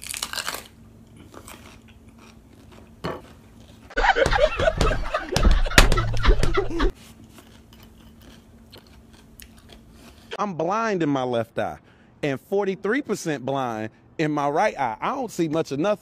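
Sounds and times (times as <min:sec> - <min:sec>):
crunching and chewing peppers: 0:00.0 - 0:04.0, 0:06.9 - 0:10.3
men laughing and hollering: 0:04.0 - 0:06.9.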